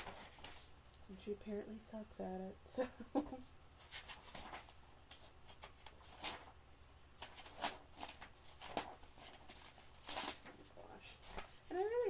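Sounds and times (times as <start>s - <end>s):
paper rustling: 0.0s - 0.8s, 3.8s - 6.6s, 7.2s - 12.0s.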